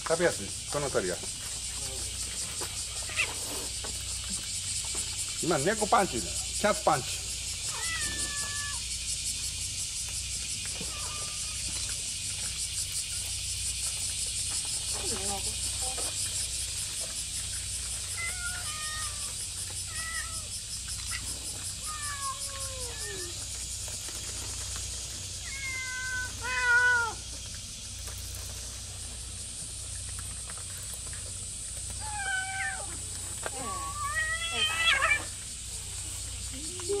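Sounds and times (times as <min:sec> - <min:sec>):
cats meowing: 0:03.0 - 0:03.7, 0:07.6 - 0:08.8, 0:10.8 - 0:11.9, 0:18.0 - 0:20.5, 0:21.1 - 0:23.5, 0:25.4 - 0:27.3, 0:32.0 - 0:35.4.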